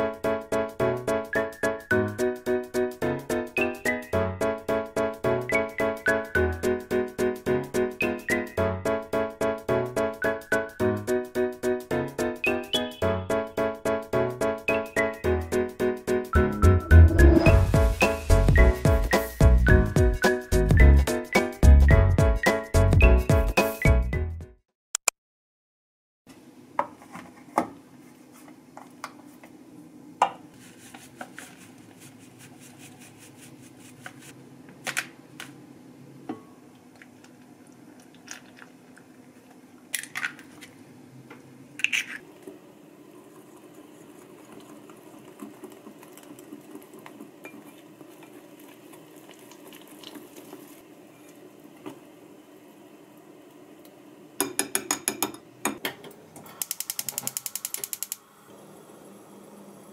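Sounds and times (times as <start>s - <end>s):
utensils knocking on glass bowl: 54.4s - 55.8s.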